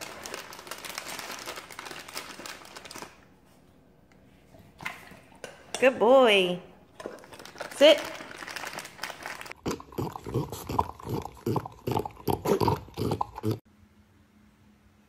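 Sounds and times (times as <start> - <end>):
animals eating and breathing: 9.0 - 13.6.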